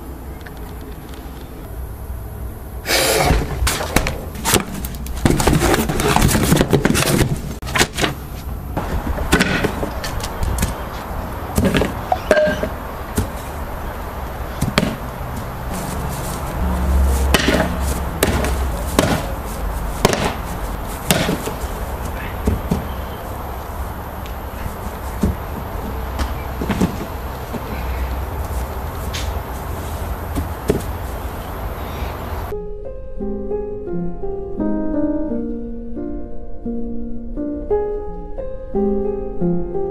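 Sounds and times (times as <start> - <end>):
wood and cardboard banging: 3.2 - 31.6.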